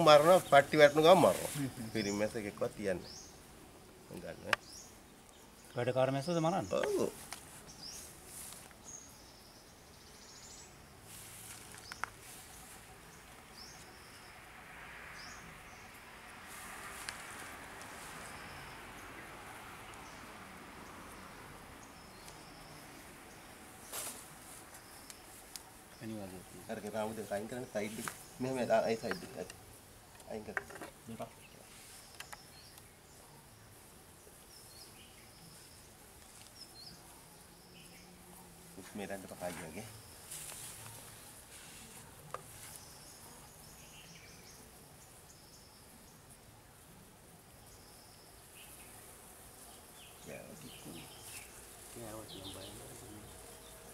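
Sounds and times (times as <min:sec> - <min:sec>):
bird chirping: 0:00.0 - 0:03.4, 0:08.8 - 0:10.9, 0:18.0 - 0:38.2, 0:42.3 - 0:46.3, 0:47.6 - 0:53.9
low background hiss: 0:00.0 - 0:53.9.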